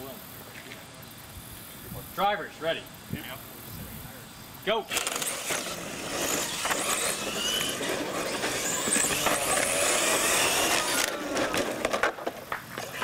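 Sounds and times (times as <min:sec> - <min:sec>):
high motor whine: 0:02.9 - 0:13.0
toy trucks motor and tyre noise: 0:04.9 - 0:13.0.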